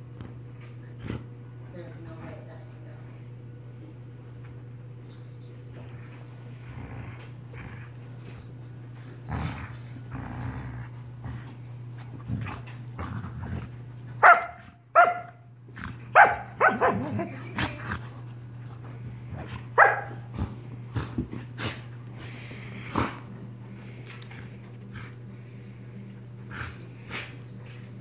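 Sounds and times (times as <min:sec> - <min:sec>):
steady low hum: 0:00.0 - 0:28.0
young dog barking: 0:14.2 - 0:15.4, 0:16.2 - 0:17.1, 0:19.8 - 0:20.2.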